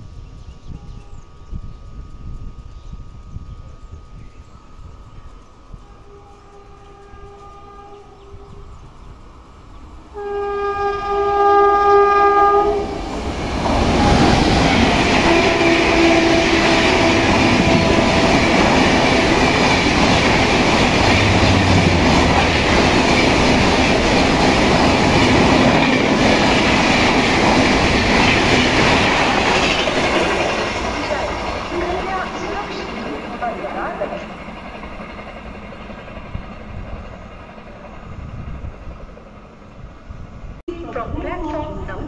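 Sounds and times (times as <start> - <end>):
train horn blast: 5.7 - 8.8, 10.1 - 13.2, 13.9 - 19.7, 20.9 - 23.2
train coaches rushing and rattling: 10.3 - 39.9.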